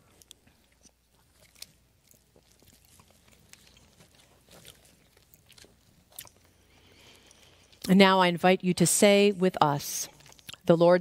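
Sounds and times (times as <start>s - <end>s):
mouth and handling sounds: 0.0s - 8.0s, 10.1s - 10.7s.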